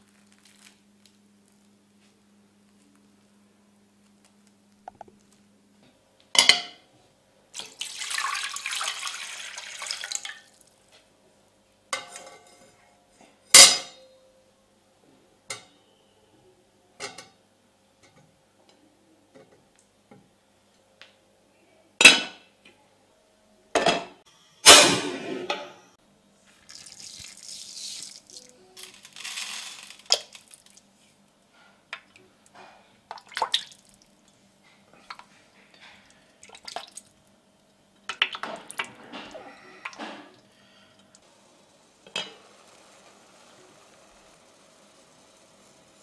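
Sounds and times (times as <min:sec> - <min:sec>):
water pouring into pot: 0:07.6 - 0:10.6, 0:26.7 - 0:30.8.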